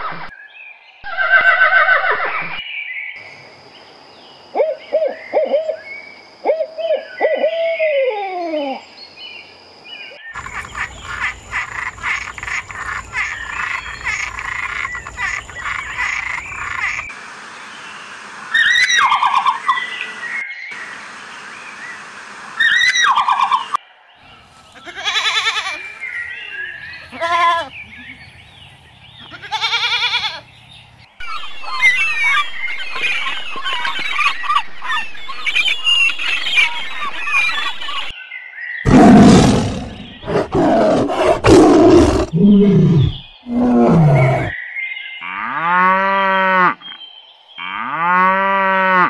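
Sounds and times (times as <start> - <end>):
chorus of rapid animal calls: 1.0 - 2.6, 10.4 - 17.1, 18.5 - 19.9, 22.6 - 23.8, 31.2 - 38.1, 38.9 - 44.6.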